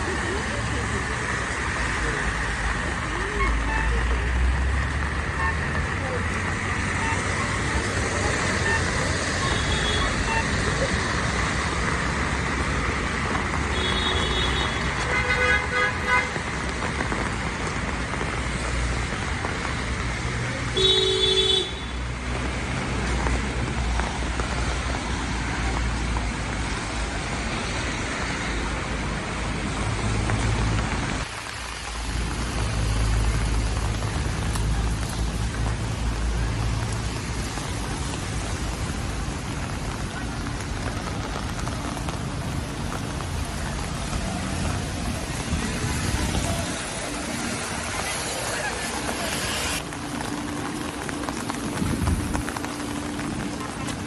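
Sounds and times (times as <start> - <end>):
rain hissing: 0.0 - 15.1, 21.8 - 54.0
tyres on wet road: 0.0 - 54.0
car horn: 13.7 - 16.4, 20.8 - 22.0
car engines running: 22.2 - 54.0.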